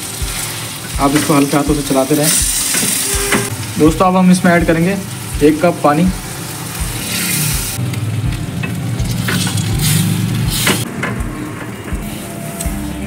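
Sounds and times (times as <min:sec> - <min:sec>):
water sizzling in hot pan: 0:00.0 - 0:13.0
ladle scraping pan: 0:02.3 - 0:03.5.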